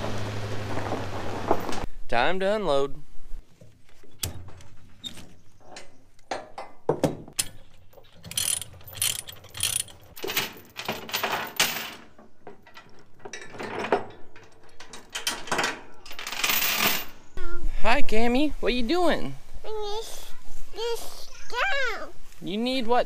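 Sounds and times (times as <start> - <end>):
metal chain rattling: 7.4 - 17.2
ratchet strap clicking: 8.2 - 10.1.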